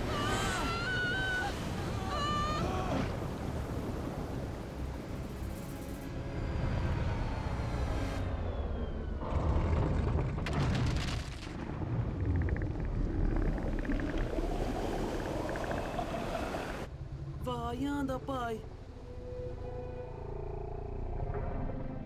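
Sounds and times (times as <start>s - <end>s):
deep rumble of churning water: 0.0s - 17.5s.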